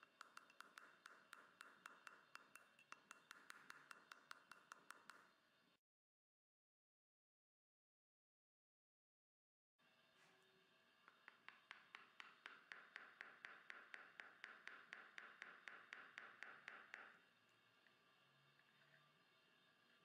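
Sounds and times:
mallet tapping metal handle: 0.0s - 5.2s, 11.1s - 17.2s.

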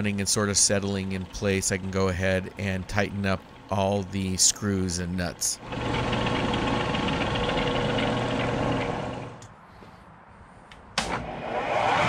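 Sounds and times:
milling machine motor humming: 5.6s - 9.4s.

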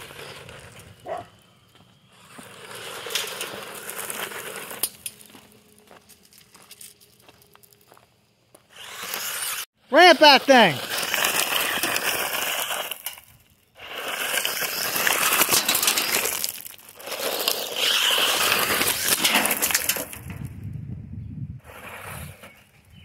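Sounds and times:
tyres crunching on gravel: 0.0s - 20.5s
electric motor whine: 8.6s - 9.7s.

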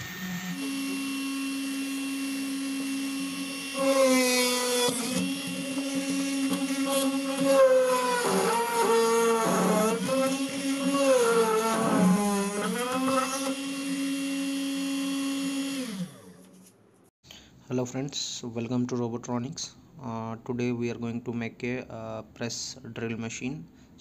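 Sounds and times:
drill motor whining: 0.0s - 16.7s.

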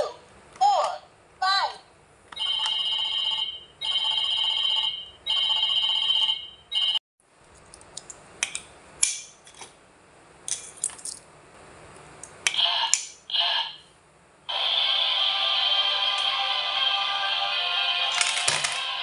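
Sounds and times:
coin clinking: 18.1s - 18.9s.

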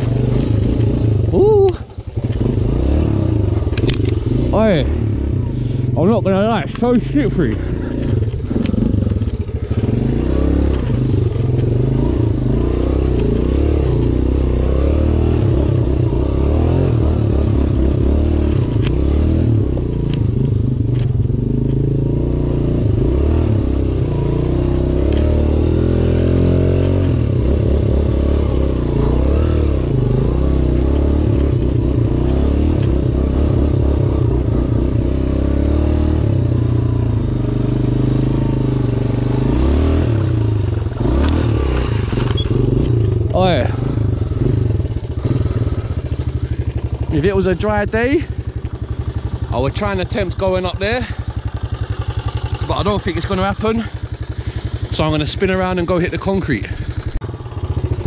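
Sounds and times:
dirt bike engine revving: 0.0s - 58.0s
sharp clicks: 3.7s - 4.2s.

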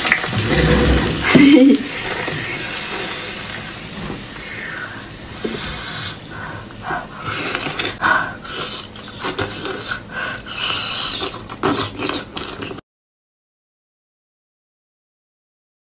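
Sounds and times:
person breathing: 4.4s - 8.9s, 9.8s - 11.0s
wet chewing and slurping: 7.2s - 12.8s.

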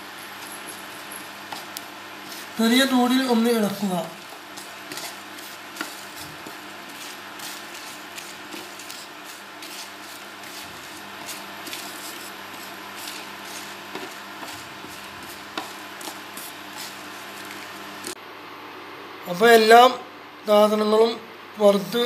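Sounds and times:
spatula scraping spices on pan: 0.3s - 2.8s, 4.2s - 18.2s.

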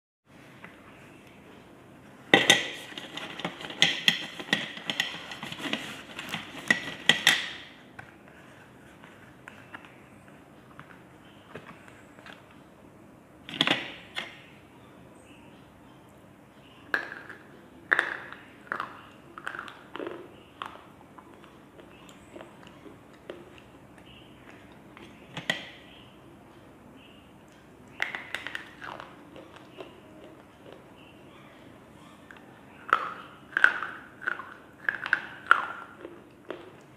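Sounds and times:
pencils clattering onto a plate: 2.3s - 7.6s.

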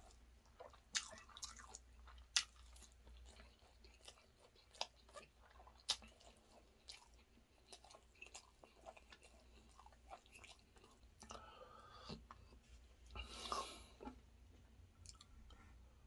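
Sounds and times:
person chewing and licking fingers: 0.0s - 11.4s, 15.0s - 15.6s.

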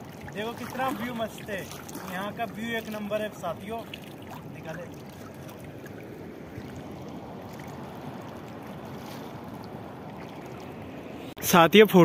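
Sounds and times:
river water flowing over rocks: 0.0s - 11.3s.

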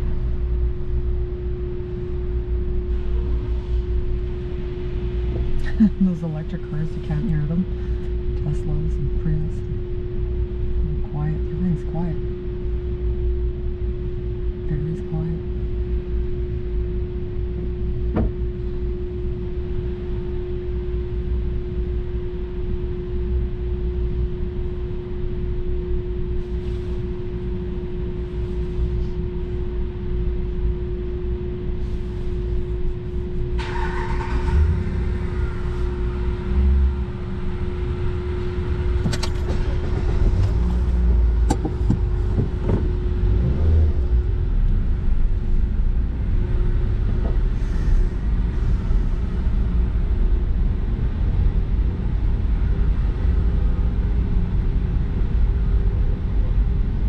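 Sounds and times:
low steady rumble: 0.0s - 57.0s
steady hum: 0.0s - 57.0s
knocks of cars rolling: 38.9s - 43.0s.

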